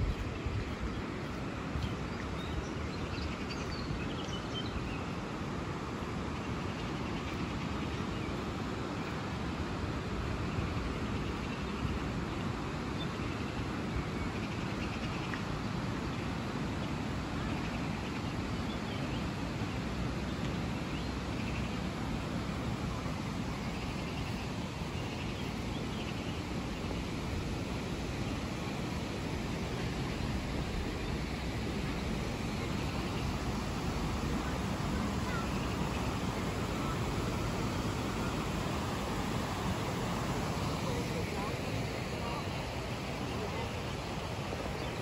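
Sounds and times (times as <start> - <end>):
fast river rushing: 15.4 - 45.0.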